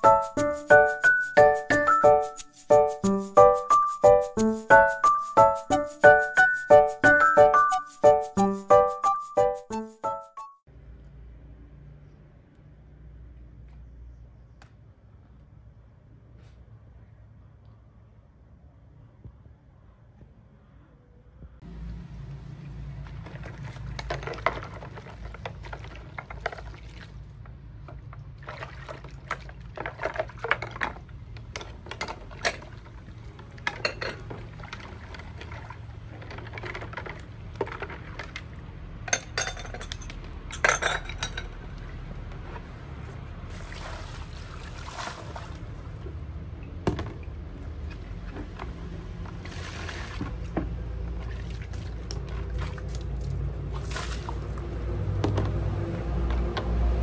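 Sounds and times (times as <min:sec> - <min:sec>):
water sloshing and splashing: 0:22.7 - 0:38.9, 0:41.4 - 0:55.1
dishes clinking: 0:33.7 - 0:34.3, 0:39.1 - 0:41.6.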